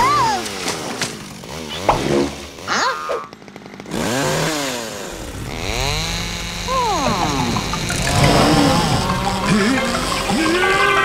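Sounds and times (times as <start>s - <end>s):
cartoon chainsaw revving: 0.0s - 11.0s
rapid ticking: 5.1s - 11.0s.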